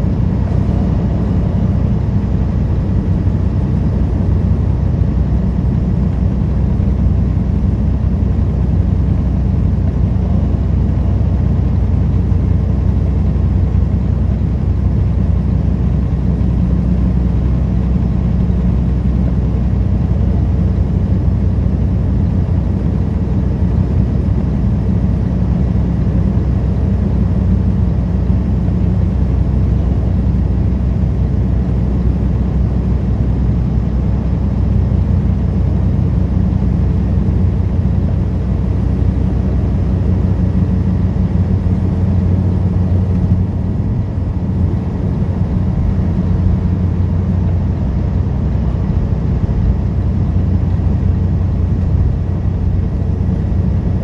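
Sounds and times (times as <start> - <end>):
road noise: 0.0 - 6.2
truck diesel engine running: 0.0 - 54.0.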